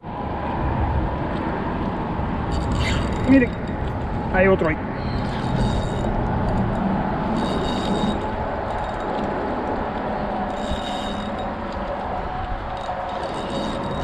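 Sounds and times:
wind on microphone: 0.1 - 14.0
fishing reel whirring: 2.5 - 4.0, 5.0 - 14.0.

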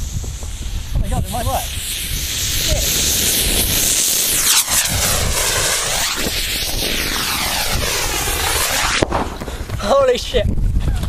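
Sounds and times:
rocket motor exhaust hissing: 0.0 - 10.2.

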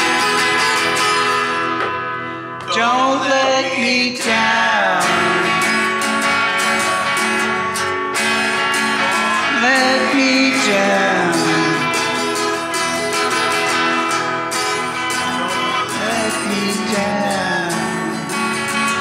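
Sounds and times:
electric guitar: 0.0 - 19.0
person singing: 2.6 - 6.1, 8.9 - 12.6, 15.0 - 19.0.

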